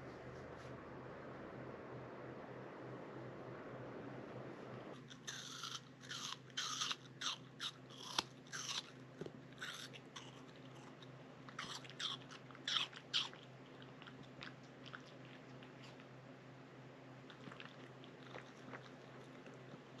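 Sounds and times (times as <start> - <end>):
puppy chewing with crunches: 5.0 - 16.2, 17.2 - 20.0.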